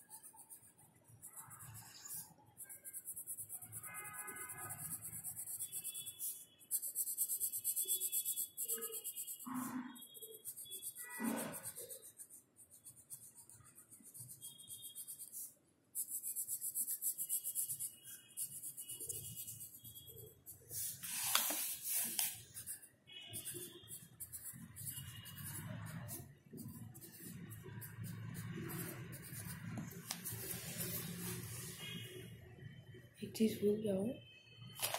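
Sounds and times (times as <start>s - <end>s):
pencil scratching on paper: 0.0s - 32.1s
paper rustle: 20.7s - 22.4s.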